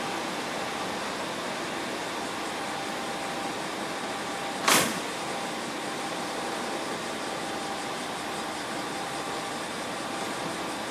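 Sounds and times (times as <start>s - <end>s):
loud hiss burst: 4.6s - 5.2s.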